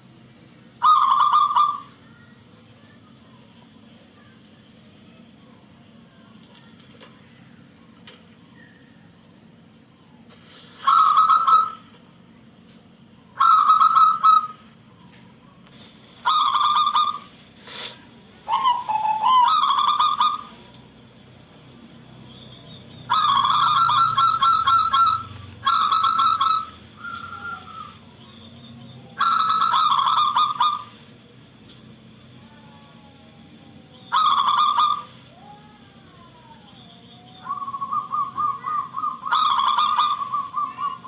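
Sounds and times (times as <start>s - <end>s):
dove trilled cooing: 0.7s - 2.2s, 10.8s - 12.0s, 13.3s - 14.8s, 16.0s - 21.0s, 21.9s - 31.2s, 32.2s - 41.0s.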